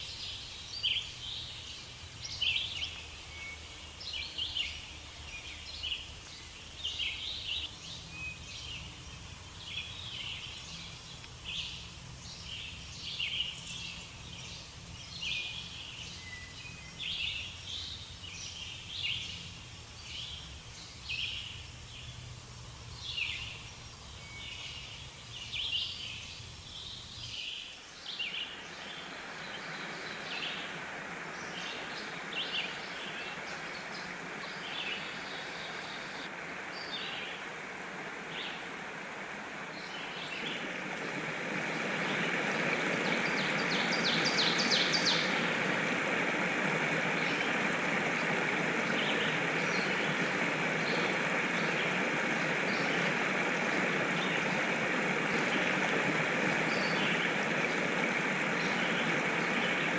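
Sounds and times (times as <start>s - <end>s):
birds chirping: 26.8s - 59.9s
steady rushing noise: 28.4s - 59.9s.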